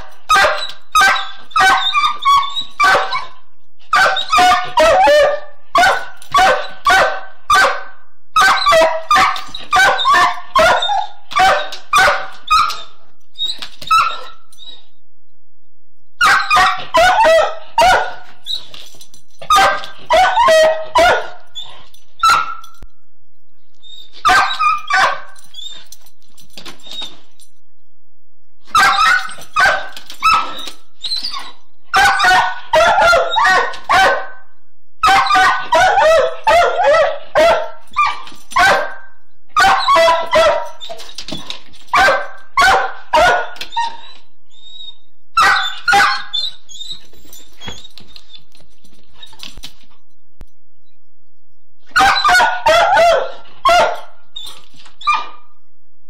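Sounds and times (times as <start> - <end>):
dog barking: 0.0 - 13.0, 16.2 - 18.3, 19.5 - 21.5, 22.2 - 22.8, 24.2 - 25.4, 28.7 - 30.6, 31.9 - 41.0, 41.9 - 44.0, 45.4 - 46.4, 51.9 - 54.2.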